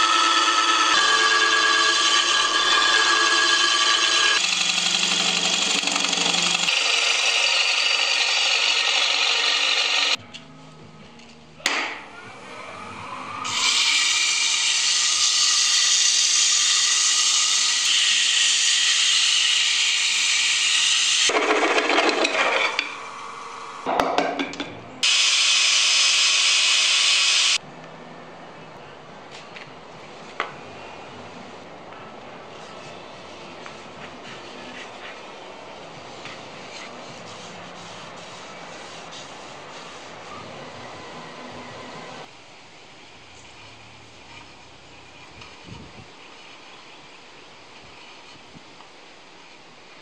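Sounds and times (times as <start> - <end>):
gouge cutting wood: 0.0 - 10.2
hand sanding spinning wood: 0.0 - 10.2, 36.0 - 40.4
wood lathe spinning: 0.0 - 10.2, 12.5 - 23.9.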